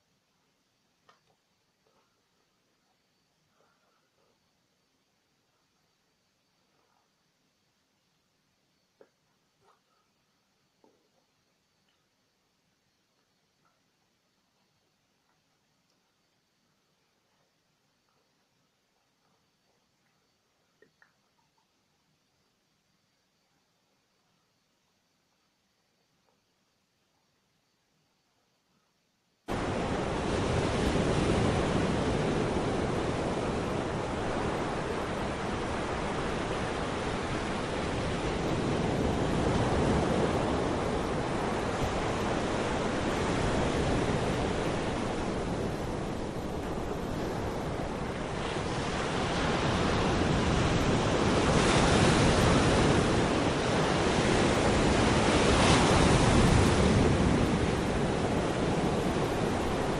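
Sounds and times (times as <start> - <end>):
wind on microphone: 29.5 - 59.9.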